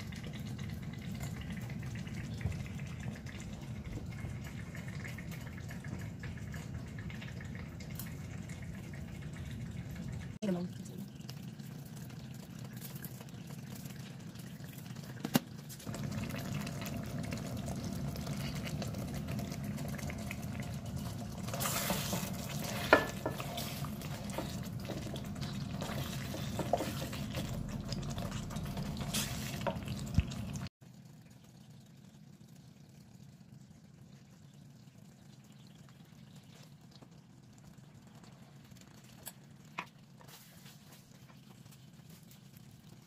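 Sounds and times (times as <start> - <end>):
thick sauce bubbling: 0.0 - 43.0
spatula scraping a pot: 21.4 - 27.6
utensils knocking against pot: 21.9 - 24.5.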